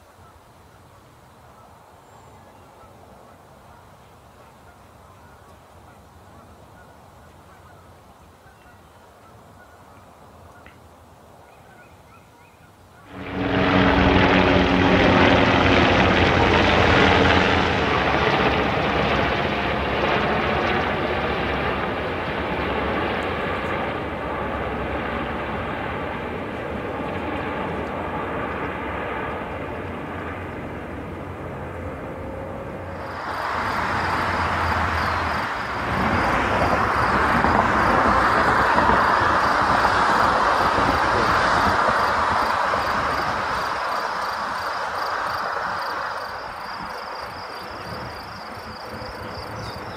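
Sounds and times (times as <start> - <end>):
helicopter rotors beating: 13.1 - 49.9
steady hiss: 32.9 - 47.5.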